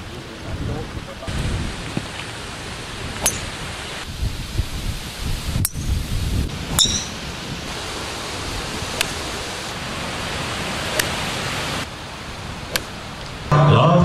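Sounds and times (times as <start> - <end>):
wind on microphone: 0.0 - 13.5
golf clubs striking balls: 3.1 - 3.7, 5.6 - 7.7, 8.9 - 9.4, 10.8 - 11.4, 12.6 - 13.4.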